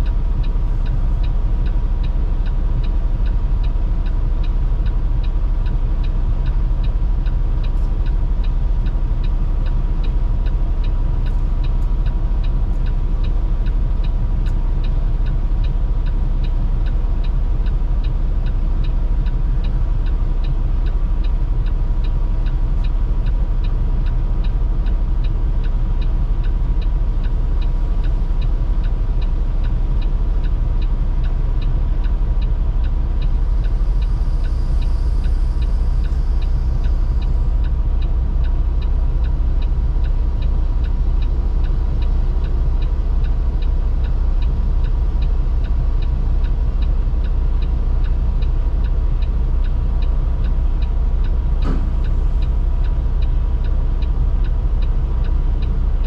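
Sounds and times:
diesel engine idling: 0.0 - 56.0
even ticking: 0.0 - 56.0
thin steady whine: 32.1 - 56.0.

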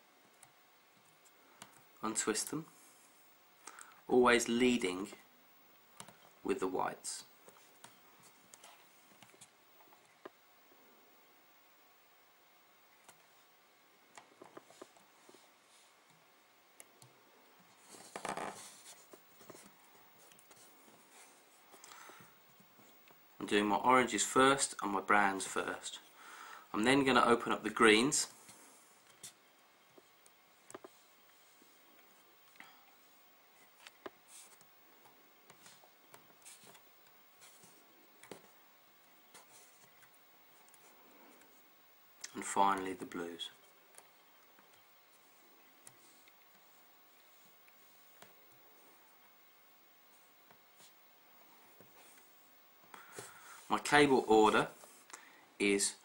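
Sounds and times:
faint rustling of wire: 0.0 - 11.2, 12.8 - 23.6, 25.4 - 56.0
fingers rustling cable wires: 16.8 - 23.2, 28.4 - 41.6.

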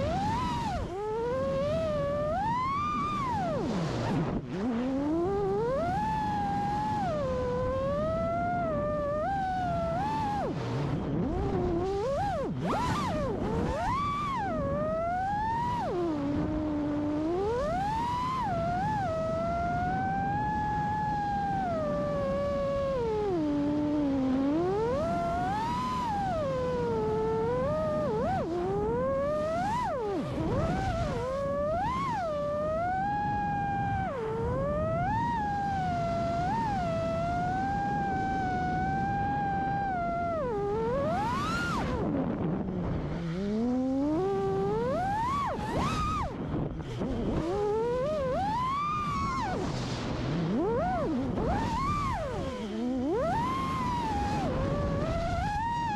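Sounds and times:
drone motors whining: 0.0 - 55.9
rushing propwash and wind: 0.0 - 55.9.

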